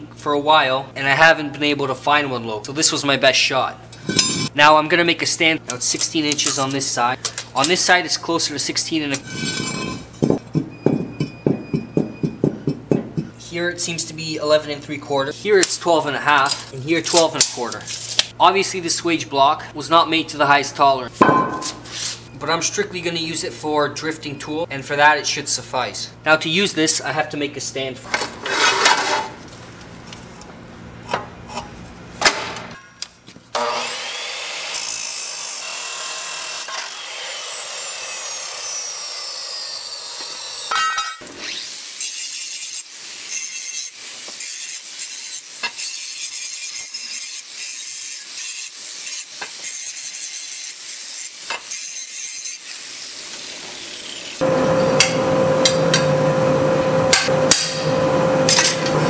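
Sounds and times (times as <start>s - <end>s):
angle grinder cutting steel: 3.9s - 4.5s, 9.1s - 10.4s, 33.6s - 59.0s
loud steady buzz: 54.4s - 59.0s.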